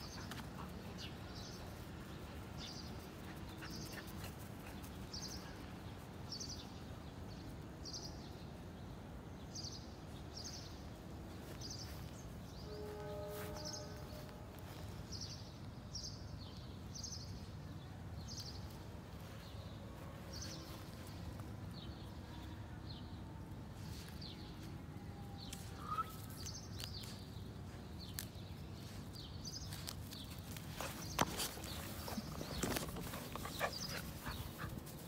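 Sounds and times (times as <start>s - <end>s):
small birds chirping: 0.0s - 12.7s, 25.3s - 35.0s
low outdoor background noise: 0.0s - 35.0s.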